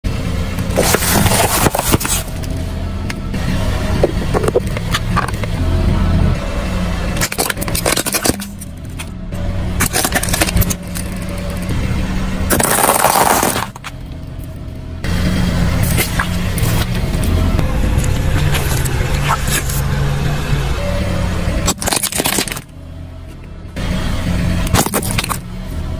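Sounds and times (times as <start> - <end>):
car engine and tyre rumble: 0.0 - 25.9
tyre crushing biscuits and toys: 0.6 - 2.5, 7.2 - 9.1, 9.8 - 11.7, 12.5 - 14.0, 21.6 - 22.7, 24.6 - 25.5.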